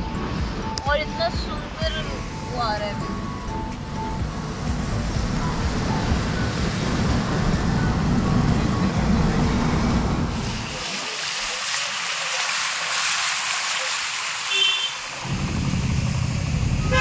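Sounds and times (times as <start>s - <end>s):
car road rumble: 0.0s - 10.9s, 15.0s - 17.0s
heavy rain and road spray: 3.9s - 17.0s.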